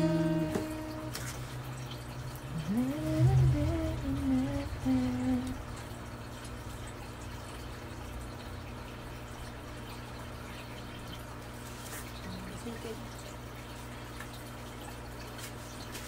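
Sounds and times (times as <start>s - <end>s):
person humming a tune: 0.0s - 1.2s, 2.5s - 5.6s
steady low hum: 0.0s - 11.2s.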